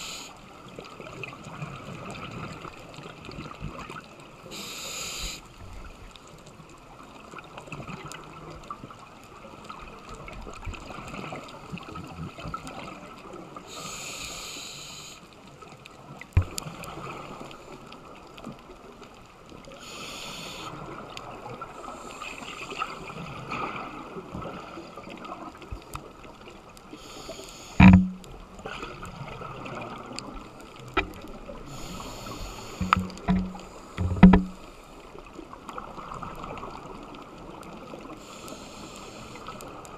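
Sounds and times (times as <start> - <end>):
low steady hiss: 0.0 - 39.9
loud thumps: 27.8 - 28.2, 32.8 - 34.6
bubbling regulator exhalation: 32.2 - 34.6.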